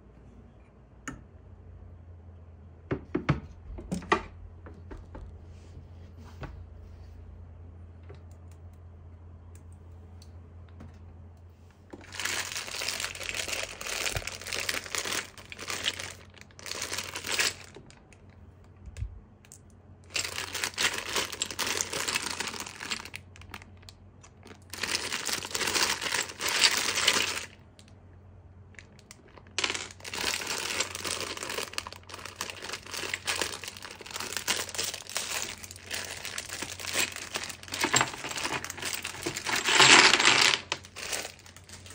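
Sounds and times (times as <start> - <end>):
plastic bag crinkling: 11.9 - 18.4, 20.0 - 27.6, 28.7 - 41.9.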